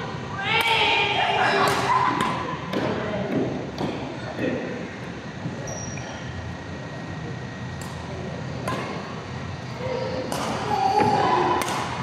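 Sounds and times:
rackets hitting shuttlecock: 0:01.6 - 0:04.0, 0:08.6 - 0:09.1, 0:10.2 - 0:12.0.

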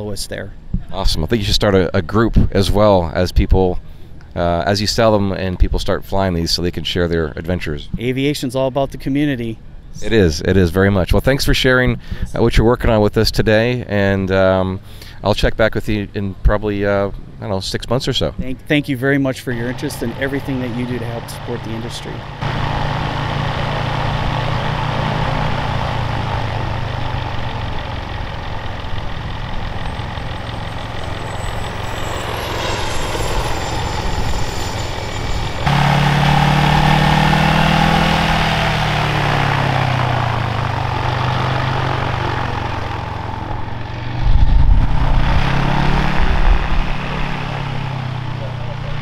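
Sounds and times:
small engine with propeller running: 0:19.6 - 0:49.0
loud low rumble: 0:19.7 - 0:49.0.

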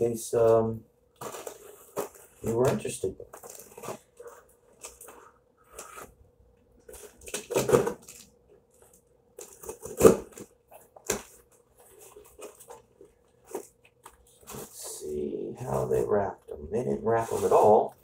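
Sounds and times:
faint steady hum: 0:00.0 - 0:18.0
cardboard and tape tearing: 0:06.9 - 0:08.3, 0:09.4 - 0:11.4.

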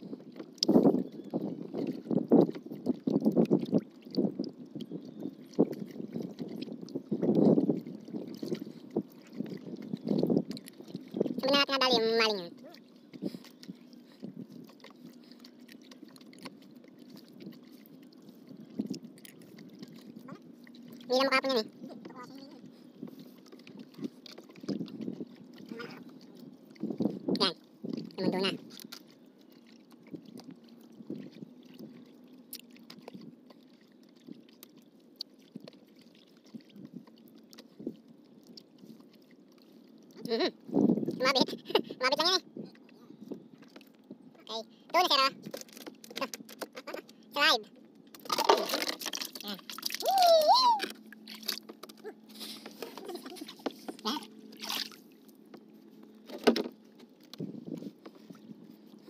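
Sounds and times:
fish flapping and slapping: 0:45.4 - 0:47.2, 0:48.1 - 0:58.6
net taps and knocks on canoe: 0:56.2 - 0:58.2.

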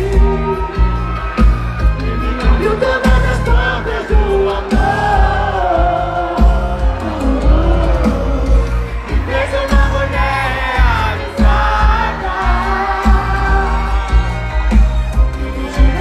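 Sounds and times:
person singing: 0:00.0 - 0:01.4, 0:02.0 - 0:14.6, 0:15.3 - 0:16.0
heavy bass beat: 0:00.0 - 0:16.0.

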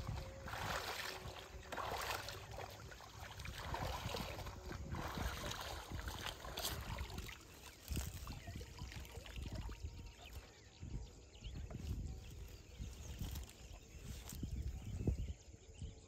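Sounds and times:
water sloshing and splashing: 0:00.0 - 0:10.7.

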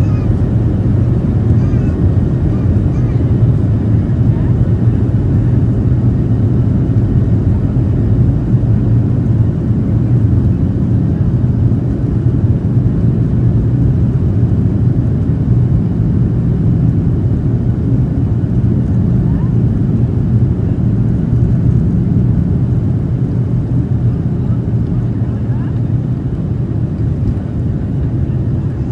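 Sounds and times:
airplane cabin rumble: 0:00.0 - 0:28.9.

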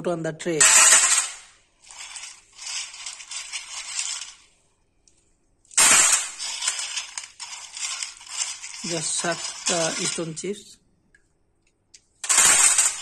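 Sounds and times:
wet stone chips clinking on steel: 0:05.7 - 0:10.4.

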